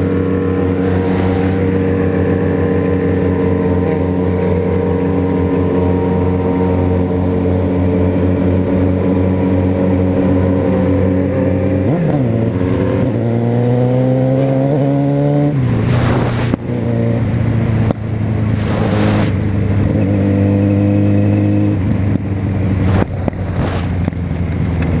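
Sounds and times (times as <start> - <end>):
rushes of noise: 0.0 - 4.3, 15.6 - 16.9, 17.7 - 19.9, 22.7 - 24.3
motorcycle engine accelerating: 0.0 - 25.0.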